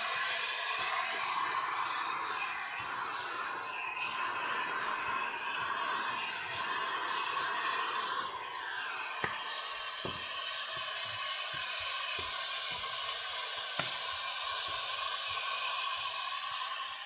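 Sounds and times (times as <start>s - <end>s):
heat gun blowing hiss: 0.0s - 17.0s.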